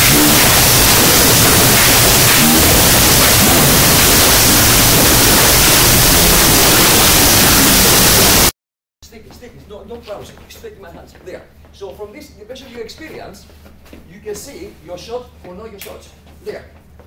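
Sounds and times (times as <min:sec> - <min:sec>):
loud static hiss: 0:00.0 - 0:08.6.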